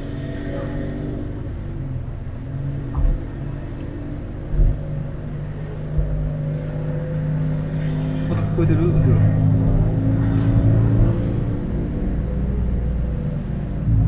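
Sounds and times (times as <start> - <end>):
car engine at low revs: 0.0 - 14.0
short low thumps: 2.9 - 3.3, 4.5 - 4.9.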